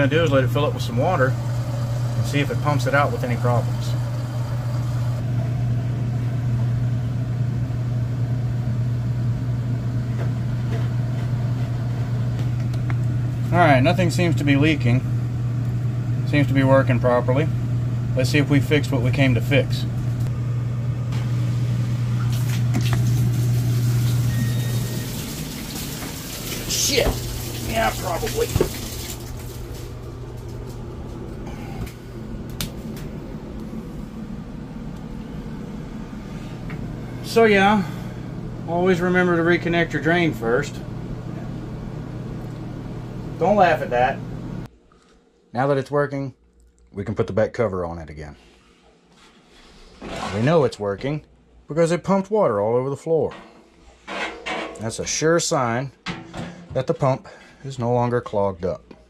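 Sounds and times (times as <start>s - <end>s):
drain pump humming: 0.0s - 44.7s
washing machine running: 0.0s - 44.7s.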